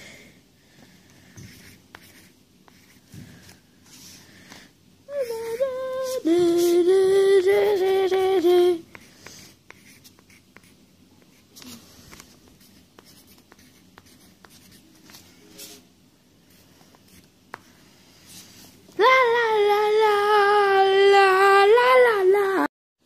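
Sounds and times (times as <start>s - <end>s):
pen scratching on paper: 1.4s - 3.0s, 8.9s - 15.7s
person humming: 5.1s - 9.0s.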